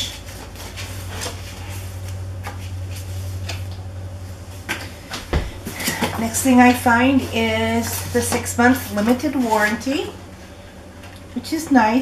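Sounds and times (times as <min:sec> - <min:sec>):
paper rustling: 0:00.0 - 0:03.8
steady low hum: 0:00.0 - 0:12.0.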